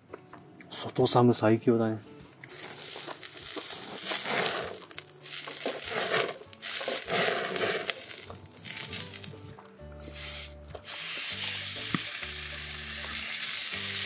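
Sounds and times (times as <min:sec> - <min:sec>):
fat sizzling on hot griddle: 0:02.5 - 0:09.4, 0:10.0 - 0:14.0.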